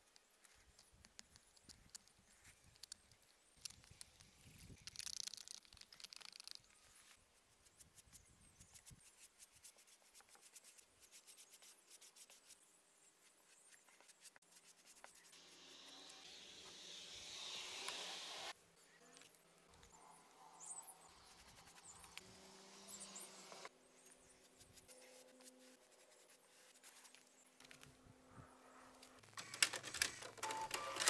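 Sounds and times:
paintbrush strokes on wood: 23.2s - 27.4s.

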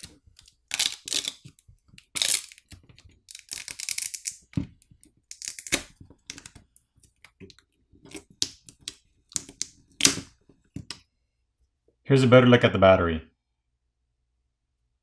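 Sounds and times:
clicks crackles and scrapes: 0.0s - 11.1s.

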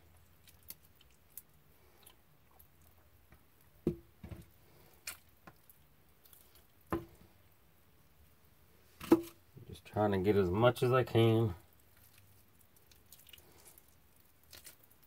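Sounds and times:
wet squishes of meat: 0.1s - 3.2s, 4.6s - 6.9s, 11.7s - 15.0s.

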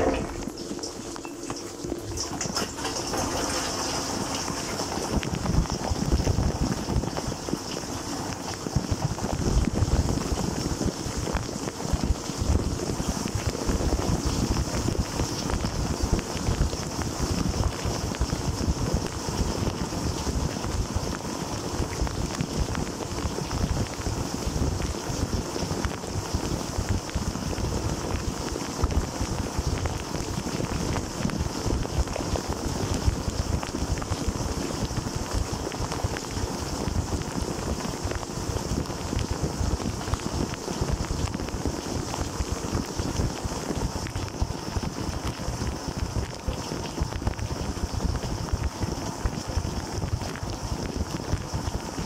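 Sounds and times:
dishwasher water jets rushing: 0.0s - 52.0s.

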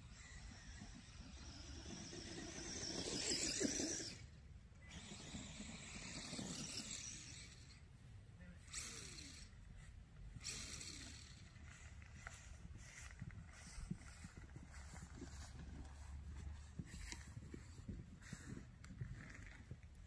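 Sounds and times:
electric motor whining: 0.0s - 7.8s, 8.6s - 9.7s, 10.3s - 15.7s.

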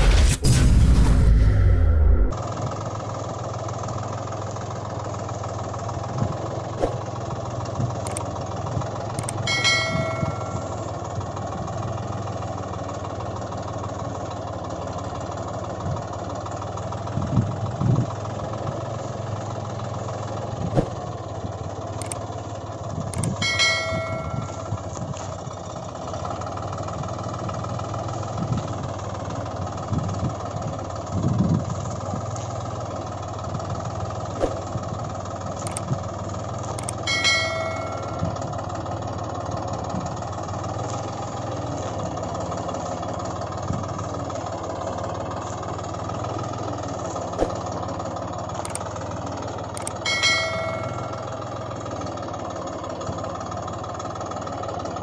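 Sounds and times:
truck engine drone: 0.0s - 55.0s
short ringing tones: 9.2s - 10.9s, 23.2s - 24.8s, 36.8s - 38.5s, 49.8s - 51.6s.

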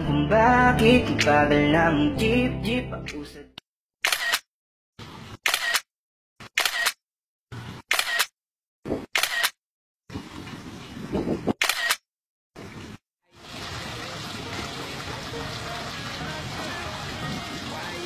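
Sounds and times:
camera shutter clicks: 4.0s - 4.5s, 5.4s - 7.0s, 7.9s - 8.3s, 9.2s - 9.6s, 11.6s - 12.0s.

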